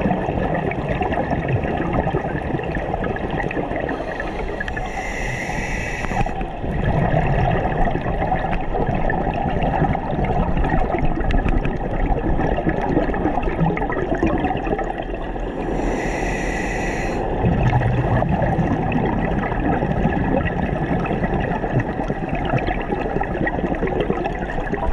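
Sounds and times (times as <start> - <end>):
gurgling exhaled bubbles: 0.0 - 24.9
regulator hissing inhalation: 3.9 - 6.4, 15.6 - 17.3.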